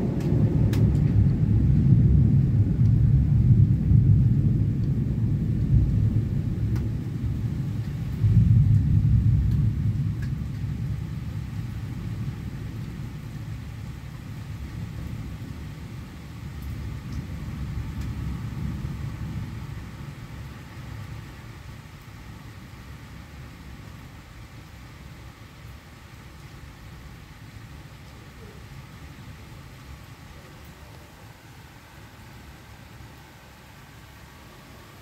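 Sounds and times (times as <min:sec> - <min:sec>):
rolling thunder: 0:00.0 - 0:22.6.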